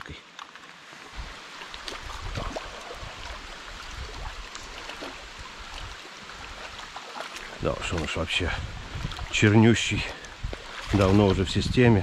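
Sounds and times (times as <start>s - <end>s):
river rushing: 0.5s - 11.5s
fish splashing in water: 1.1s - 8.3s, 10.1s - 11.4s.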